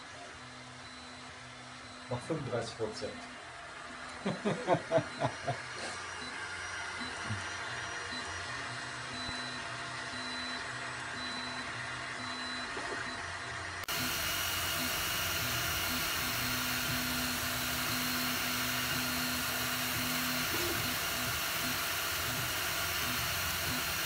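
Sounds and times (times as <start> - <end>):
printer fan noise: 0.0 - 24.0
stepper motors whining: 5.1 - 24.0.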